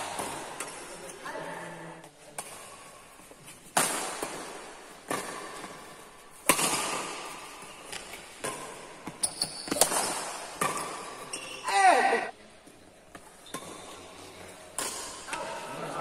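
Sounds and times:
badminton racket hits: 2.4 - 12.3.

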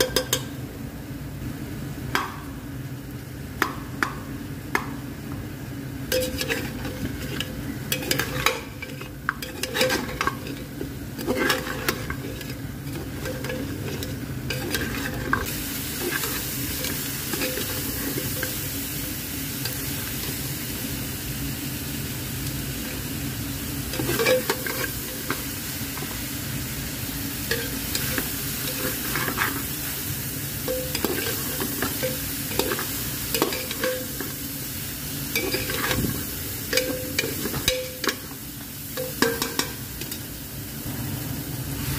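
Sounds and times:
meat sizzling: 5.8 - 41.9
metal skimmer scraping a pot: 6.1 - 16.4.

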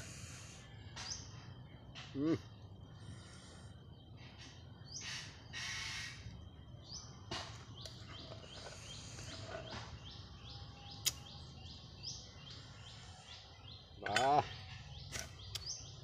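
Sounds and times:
bird chirping: 0.0 - 16.0
sharp click: 11.0 - 11.3.

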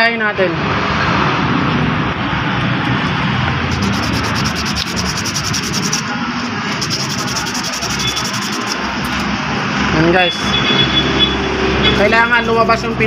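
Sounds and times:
sandpaper rasping on metal: 3.7 - 6.1, 6.7 - 9.2, 12.4 - 13.0.

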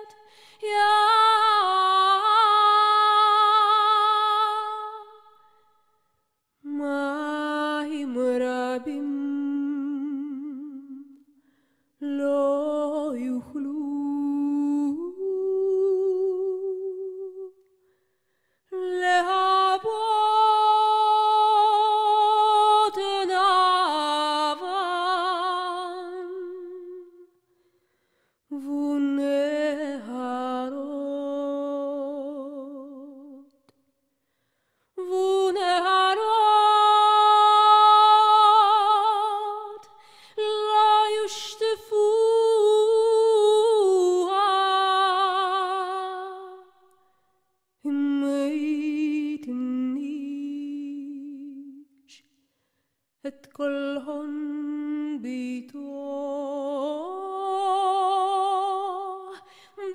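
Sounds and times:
solo voice singing slow melody: 0.0 - 5.6, 6.6 - 11.3, 12.0 - 17.7, 18.7 - 27.4, 28.5 - 33.5, 35.0 - 47.0, 47.8 - 52.3, 53.2 - 59.9.

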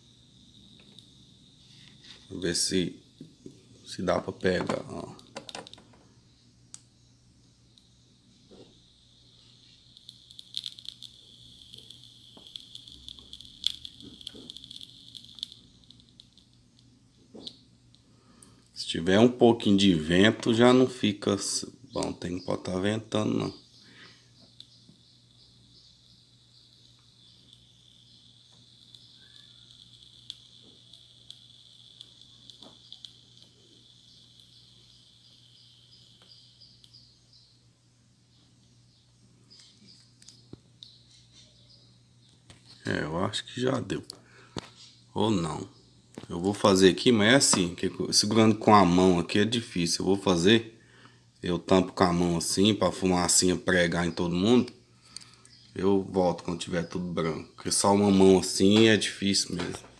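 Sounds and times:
high-pitched insect chirring: 0.0 - 17.7, 18.3 - 37.6
small sharp clicks: 5.2 - 5.9, 6.7 - 6.9, 9.6 - 18.8, 25.8 - 37.1
flux sizzling and popping: 7.8 - 17.6, 24.4 - 37.2.

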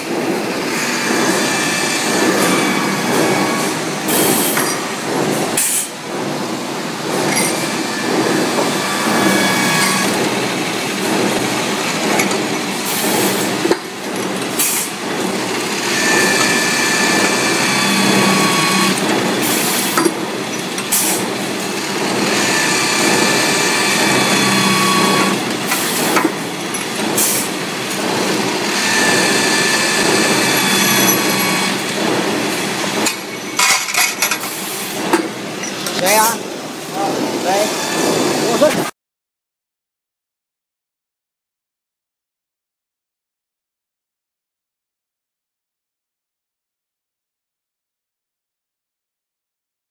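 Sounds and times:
machine tool din: 0.6 - 5.0, 7.0 - 38.8
high cutting whine: 15.7 - 19.8, 21.7 - 26.0, 28.4 - 33.6.

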